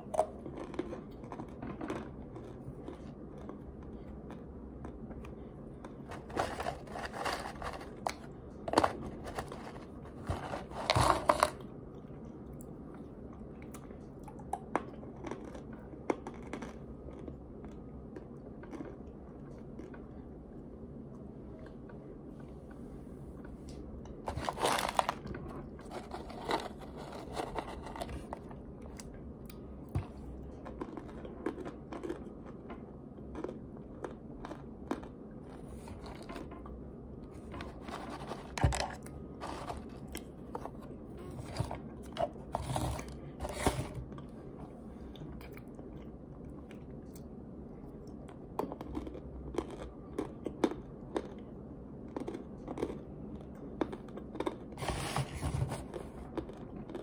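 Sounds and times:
starch crunching in plastic jar: 24.3 - 28.3.

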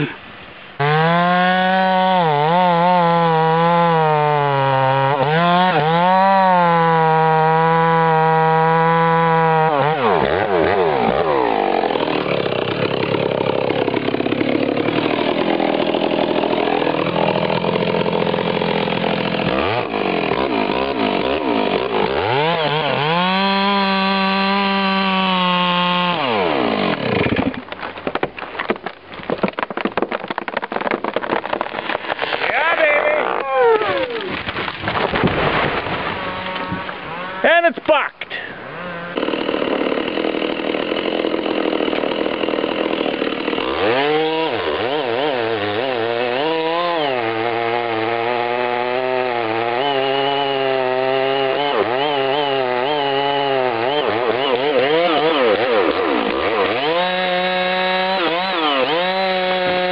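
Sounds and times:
chainsaw cutting at full throttle: 0.8 - 27.9, 30.8 - 37.6, 38.3 - 59.9
tree cracking and crashing down: 5.0 - 24.9, 25.5 - 37.4.

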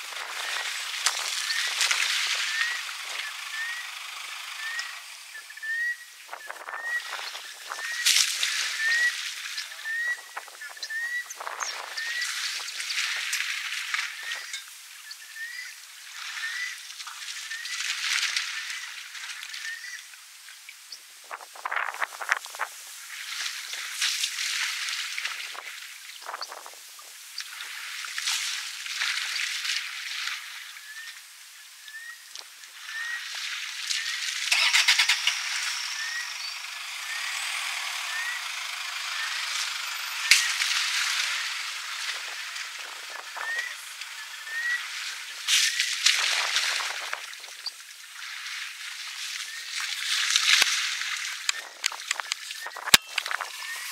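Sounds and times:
water splashing on surface: 0.0 - 5.3, 32.4 - 53.9
elephant spraying water: 0.0 - 5.4, 6.4 - 10.6, 11.4 - 15.0, 21.4 - 31.4, 32.6 - 53.9.

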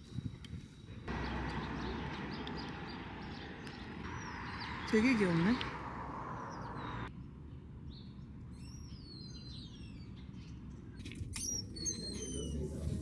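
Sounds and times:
small birds chirping: 0.1 - 13.0
low street rumble: 0.9 - 13.0.

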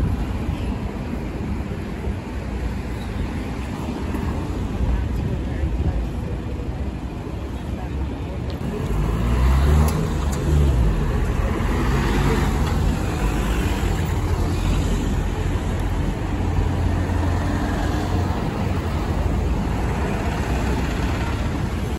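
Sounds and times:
road traffic: 0.0 - 21.9
bus engine passing: 8.6 - 21.9.

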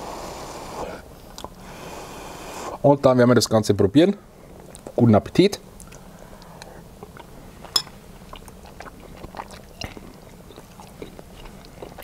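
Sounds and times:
man chewing food: 5.8 - 12.0.

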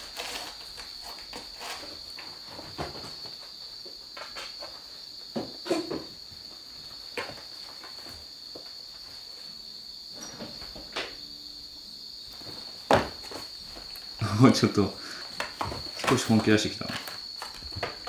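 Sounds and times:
cats scuffling: 0.0 - 9.5, 12.2 - 18.0.

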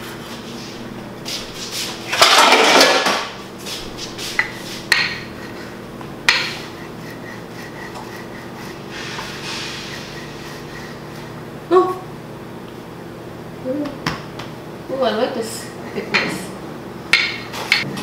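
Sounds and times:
dishes clinking and knocking: 2.1 - 3.4, 4.4 - 5.6, 6.3 - 6.8, 15.9 - 16.4.

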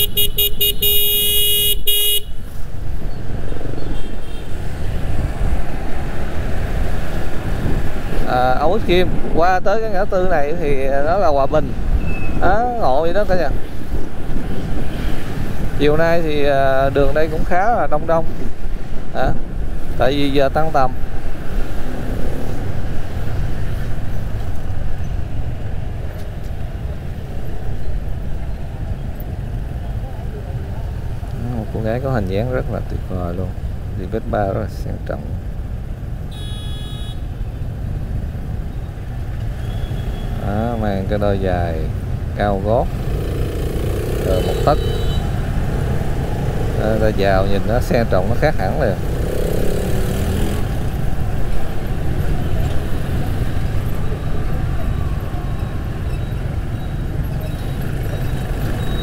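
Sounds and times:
vehicle horn beeping: 0.0 - 2.4, 36.3 - 37.3, 39.6 - 40.4, 44.3 - 45.4
traffic rumble: 0.0 - 59.0.

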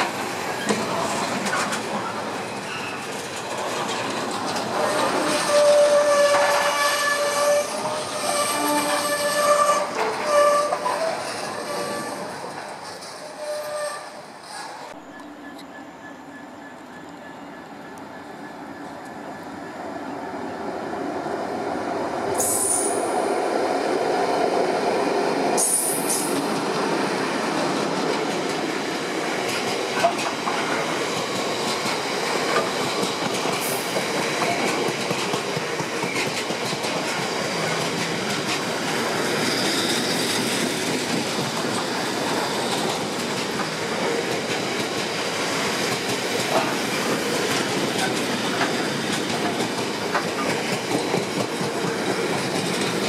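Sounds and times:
wheels clacking over rail joints: 0.0 - 13.7, 25.5 - 53.0
freight train rumbling past: 0.0 - 53.0
high-pitched wheel squeals: 4.8 - 12.3, 13.2 - 18.9.

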